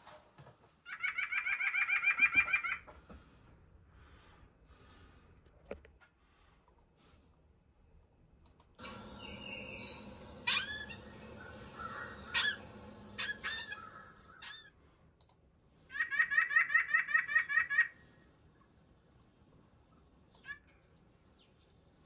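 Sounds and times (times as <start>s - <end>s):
nuthatch calling: 8.8s - 14.7s.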